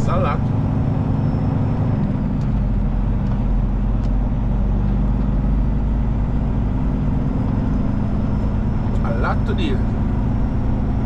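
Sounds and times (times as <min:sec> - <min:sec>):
truck diesel engine droning: 0:00.0 - 0:11.0.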